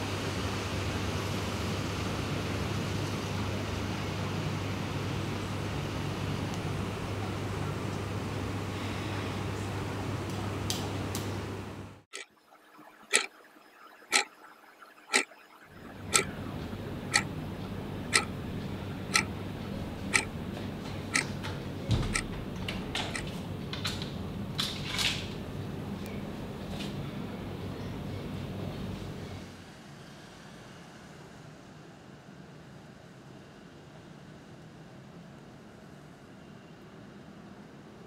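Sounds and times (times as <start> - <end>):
low steady hum: 11.4 - 23.7
clock ticking: 13.0 - 20.4, 21.1 - 21.4, 22.1 - 22.3, 23.1 - 23.3.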